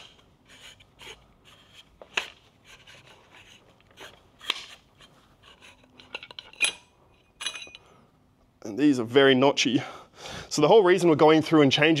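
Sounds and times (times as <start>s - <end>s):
light scraping and rubbing: 0.0s - 7.6s.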